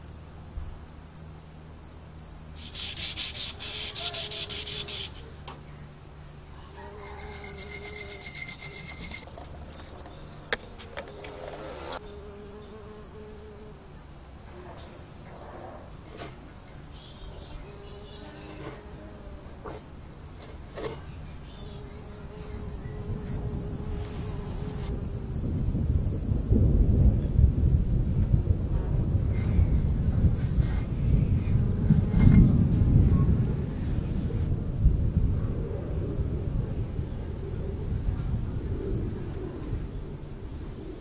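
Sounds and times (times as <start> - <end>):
high insect-like trill: 2.4 - 14.2
wire brush scrubbing metal: 2.6 - 5.3, 6.9 - 9.3.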